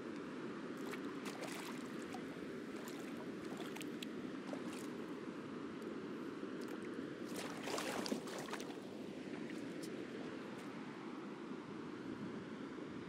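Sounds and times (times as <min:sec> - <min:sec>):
footsteps splashing in tide pools: 0:00.8 - 0:05.2, 0:06.6 - 0:10.8.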